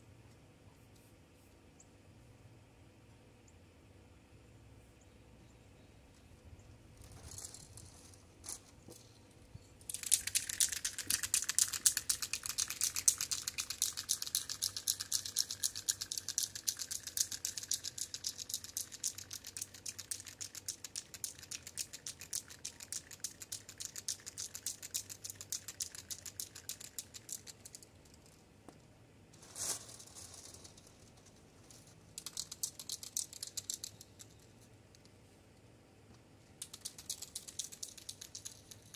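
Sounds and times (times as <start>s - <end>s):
spray can ball rattling: 9.9s - 28.4s, 29.4s - 34.4s, 36.6s - 38.9s.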